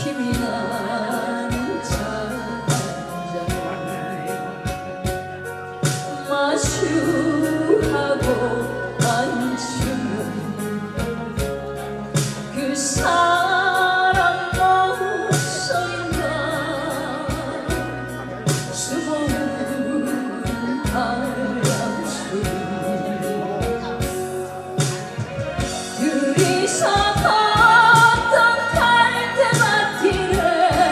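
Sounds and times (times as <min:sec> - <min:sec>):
woman singing a ballad: 0:00.0 - 0:25.0, 0:25.7 - 0:30.9
backing band: 0:00.0 - 0:30.9
steady drum beat: 0:20.5 - 0:30.9.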